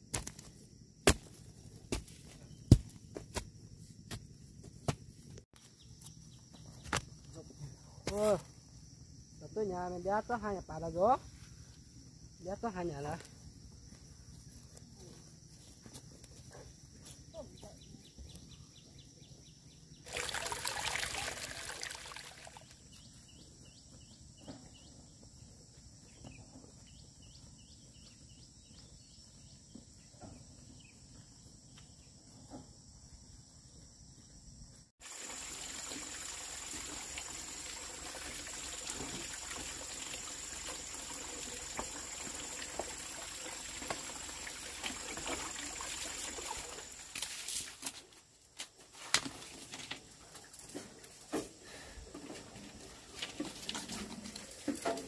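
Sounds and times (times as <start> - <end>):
water running into a sink: 20.1 - 22.7, 35.0 - 47.1.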